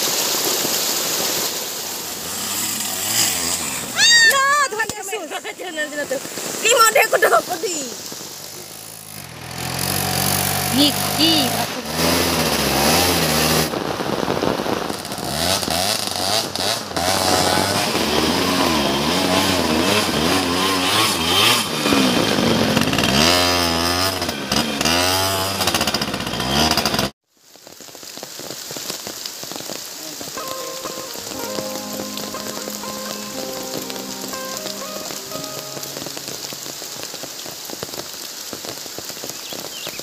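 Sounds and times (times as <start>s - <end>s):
rain hissing: 0.0s - 26.0s, 27.3s - 40.0s
dirt bike engine revving: 2.0s - 4.0s, 8.4s - 13.9s, 14.9s - 27.1s.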